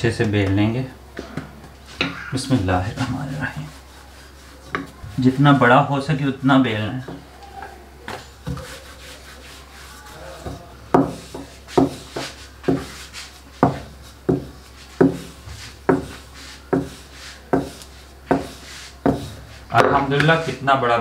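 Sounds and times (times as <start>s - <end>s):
rolling pin rubbing on dough: 1.8s - 7.3s, 8.1s - 20.8s
rolling pin knocking on stone: 13.6s - 15.3s.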